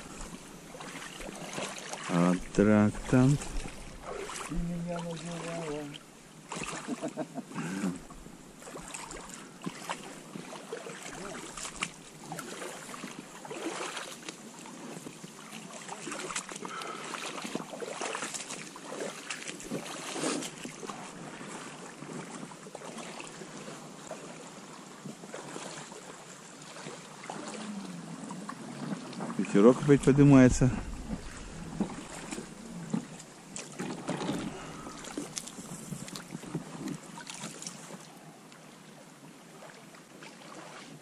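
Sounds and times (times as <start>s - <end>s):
boots splashing through water: 0.0s - 7.8s, 8.6s - 38.2s, 39.5s - 41.0s
reeds rustling against a boat: 0.0s - 41.0s
wind on microphone: 29.8s - 33.2s.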